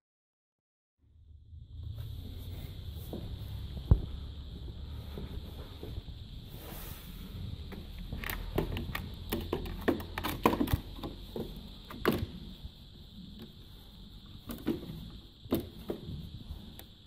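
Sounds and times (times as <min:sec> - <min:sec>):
low handling rumble: 0:01.0 - 0:09.4
clicks and knocks on metal chassis: 0:08.2 - 0:12.4.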